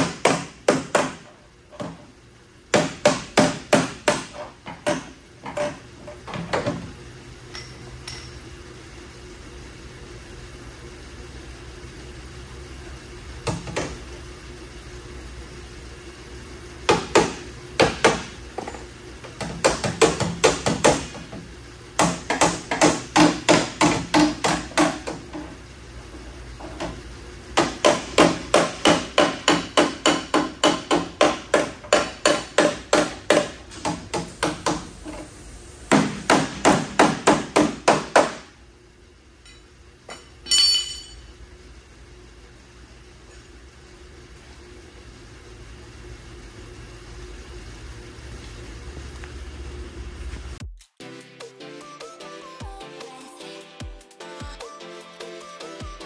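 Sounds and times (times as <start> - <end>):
hammer striking metal: 7.5 - 8.4, 27.6 - 34.8, 39.4 - 41.2.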